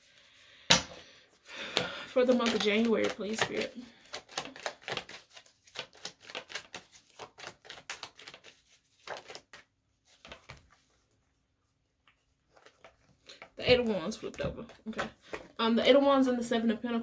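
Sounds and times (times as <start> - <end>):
cards being shuffled: 1.4 - 11.1, 12.1 - 15.6.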